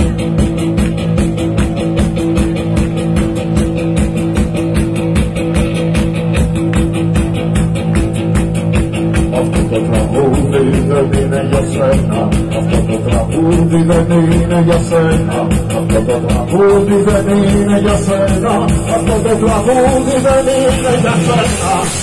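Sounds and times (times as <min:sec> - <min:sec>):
electric guitar: 0:00.0 - 0:22.0
steady drum beat: 0:00.0 - 0:22.0
person singing: 0:08.9 - 0:22.0.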